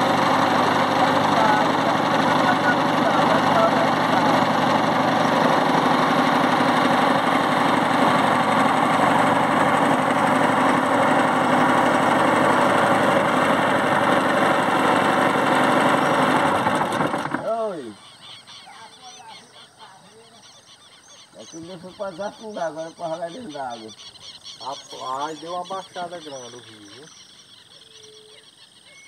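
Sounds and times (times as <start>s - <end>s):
small boat motor running: 0.0s - 19.8s, 20.4s - 29.0s
birds calling: 0.0s - 29.0s
faint high bird chirps: 17.4s - 29.0s.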